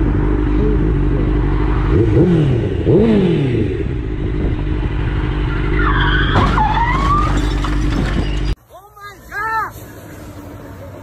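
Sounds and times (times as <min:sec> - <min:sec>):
motorcycle engine revving: 0:00.0 - 0:06.0
siren wailing: 0:05.4 - 0:07.5.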